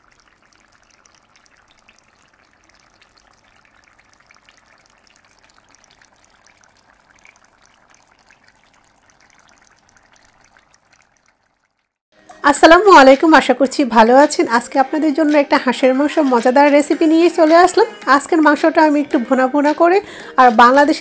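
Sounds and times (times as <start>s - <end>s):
curry bubbling and spitting: 0.0s - 12.0s.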